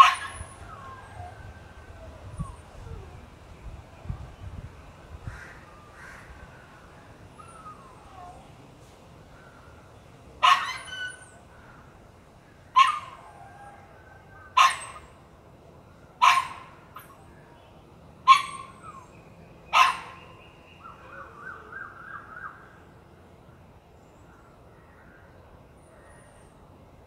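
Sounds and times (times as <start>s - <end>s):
faint birdsong: 0.0s - 27.0s.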